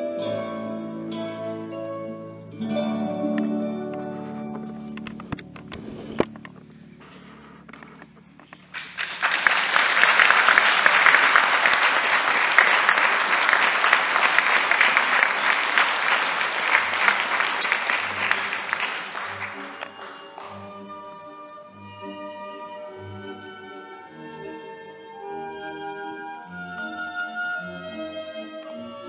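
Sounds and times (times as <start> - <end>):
soft slow music with pulsing bass: 0.0 - 8.6, 20.4 - 29.0
audience applauding: 8.6 - 21.1.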